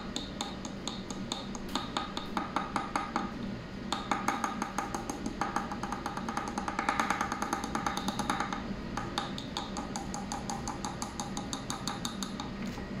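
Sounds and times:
rapid metallic tapping: 0:00.1 - 0:03.3, 0:03.9 - 0:12.5.

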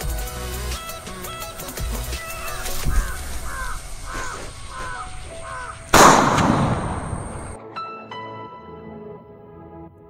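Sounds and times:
bird cawing: 0:00.8 - 0:07.6
firecracker bang: 0:05.9 - 0:07.6.

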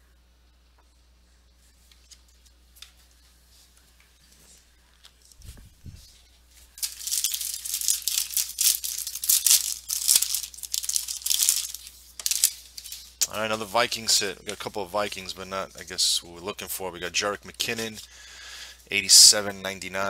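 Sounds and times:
foil wrapper tearing and crinkling: 0:06.8 - 0:13.9.

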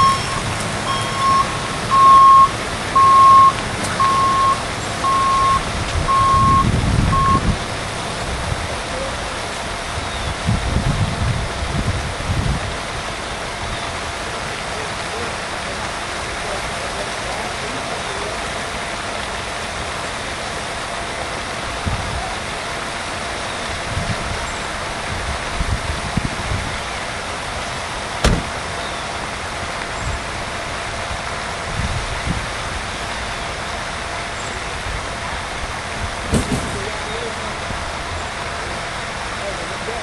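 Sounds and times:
wind buffeting microphone: 0:00.0 - 0:14.1, 0:23.7 - 0:26.9, 0:30.0 - 0:32.9
outdoor rushing noise: 0:28.1 - 0:28.8.

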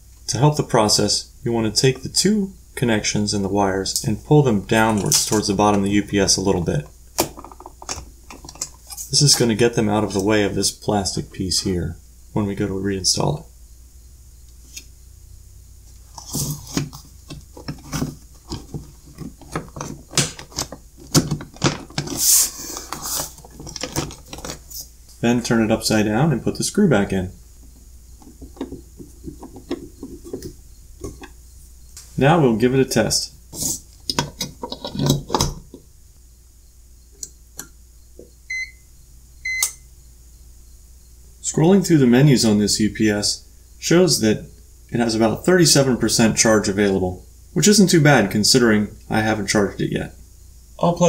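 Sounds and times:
plastic clicks and knocks: 0:07.2 - 0:08.8, 0:28.2 - 0:31.3
plastic scraping rub: 0:15.9 - 0:24.9, 0:28.2 - 0:31.3, 0:33.5 - 0:35.4
short high beeps: 0:39.4 - 0:39.8.

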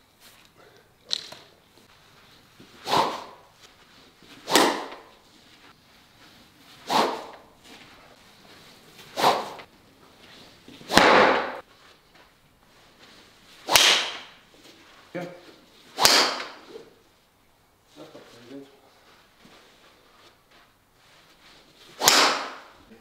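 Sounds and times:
golf club swishing through air: 0:01.8 - 0:12.0.

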